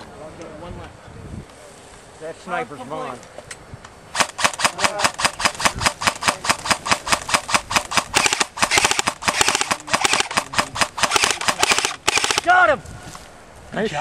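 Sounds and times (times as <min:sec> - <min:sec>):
airsoft guns firing rapidly: 0:04.2 - 0:12.5.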